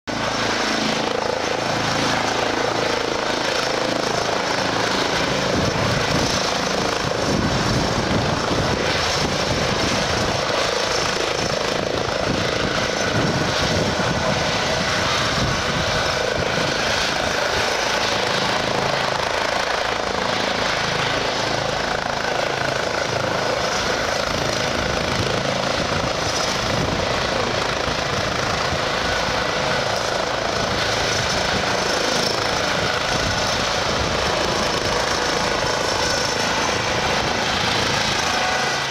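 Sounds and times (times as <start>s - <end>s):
helicopter hovering: 0.1s - 38.9s.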